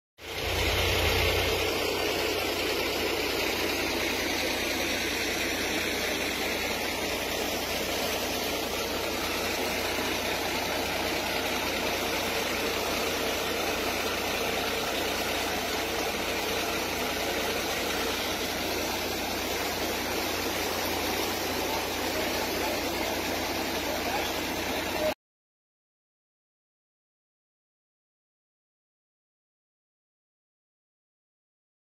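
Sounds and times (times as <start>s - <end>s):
floodwater rushing: 0.6s - 25.1s.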